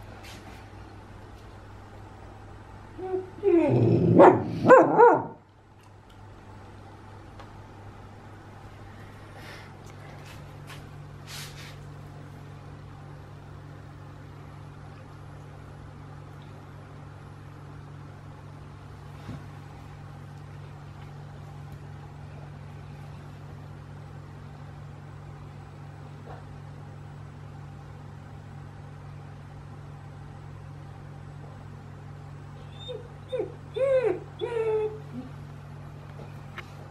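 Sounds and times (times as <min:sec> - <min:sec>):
low mechanical hum: 0:00.0 - 0:36.9.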